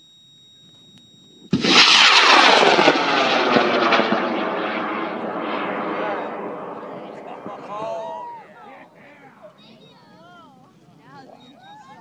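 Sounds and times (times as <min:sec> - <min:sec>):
rocket motor rushing roar: 0:01.5 - 0:08.2.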